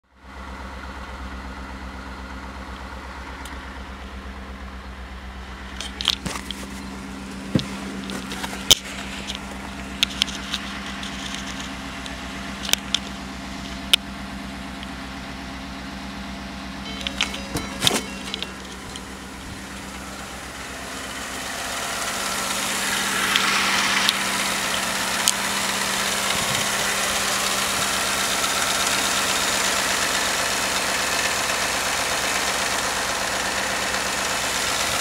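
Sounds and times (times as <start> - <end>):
truck engine idling: 0.1 - 35.0
sharp clicks and scuffs: 5.7 - 14.1.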